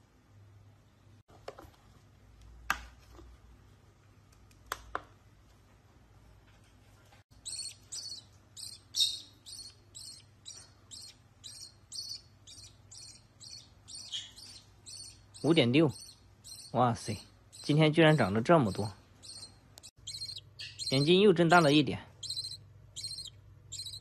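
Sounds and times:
bird chick cheeping: 0:07.4 - 0:16.8, 0:18.8 - 0:21.6, 0:22.2 - 0:24.0.

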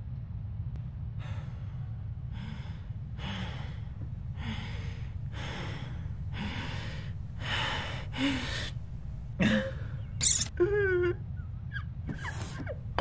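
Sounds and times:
steady low hum: 0:00.0 - 0:13.0
person breathing heavily: 0:01.2 - 0:10.2.

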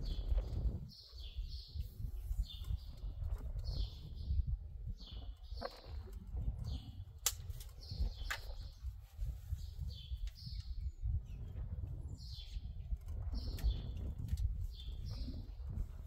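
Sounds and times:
small songbird chirping: 0:00.0 - 0:07.0, 0:07.7 - 0:15.8
sharp clicks: 0:07.2 - 0:08.6.

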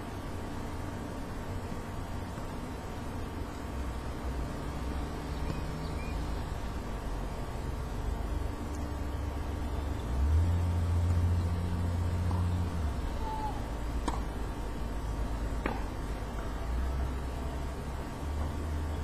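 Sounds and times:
road traffic engine rumble: 0:00.0 - 0:19.0
tennis ball knocks: 0:14.0 - 0:14.3, 0:15.6 - 0:15.9.

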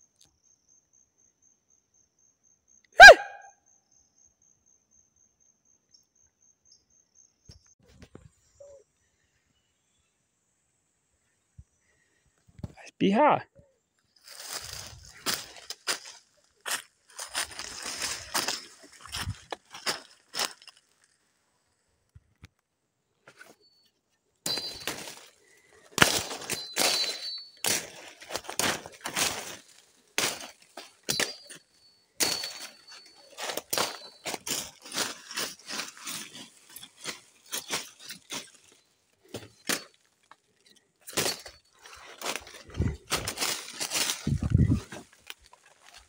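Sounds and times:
footsteps crunching in dry leaves: 0:14.2 - 0:21.1, 0:24.5 - 0:40.3, 0:41.1 - 0:46.0
twigs snapping: 0:24.5 - 0:31.6, 0:32.2 - 0:46.0
branches swishing: 0:25.9 - 0:31.6, 0:32.2 - 0:38.8, 0:41.1 - 0:46.0.

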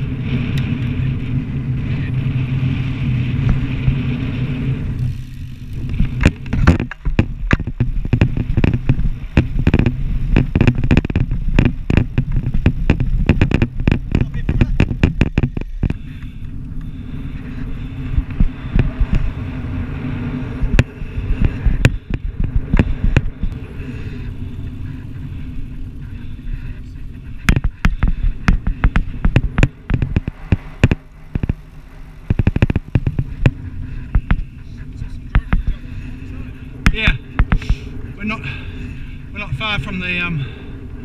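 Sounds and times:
wind noise on microphone: 0:00.0 - 0:41.0
sharp clicks and knocks: 0:05.9 - 0:16.9, 0:27.4 - 0:31.6, 0:32.2 - 0:34.4.

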